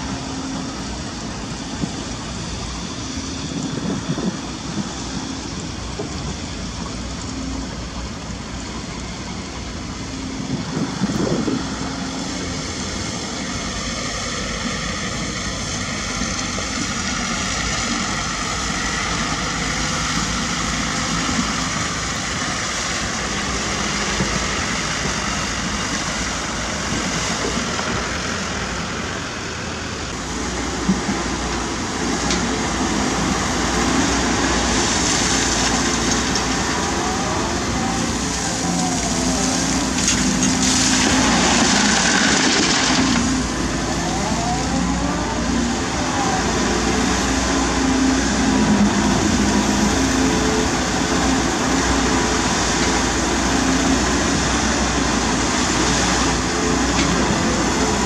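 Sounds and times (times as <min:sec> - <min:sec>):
excavator diesel engine and hydraulics: 0:00.0 - 0:58.0.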